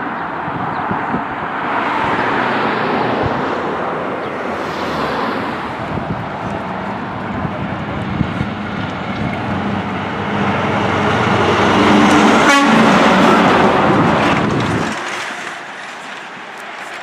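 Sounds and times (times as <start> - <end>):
truck diesel engine passing: 2.1 - 17.0
tyre noise: 11.9 - 17.0.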